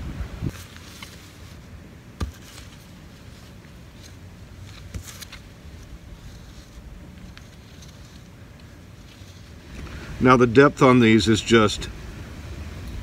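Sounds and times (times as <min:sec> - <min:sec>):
hand tool scraping garden soil: 0:00.5 - 0:09.8.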